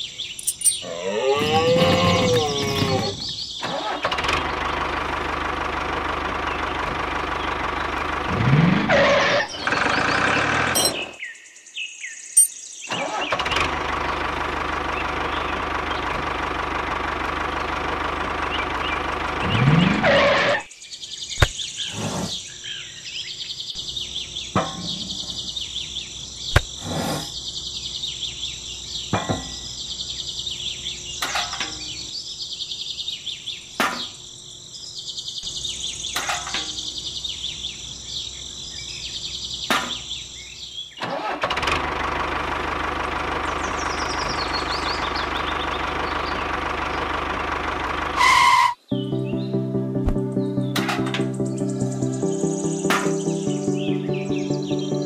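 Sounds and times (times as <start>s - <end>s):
birds chirping: 0.0s - 8.6s, 9.3s - 13.5s, 17.4s - 41.0s, 43.3s - 47.2s, 48.7s - 55.0s
tractor engine running and revving: 1.4s - 11.2s, 12.9s - 20.7s, 21.4s - 22.3s, 41.0s - 48.8s.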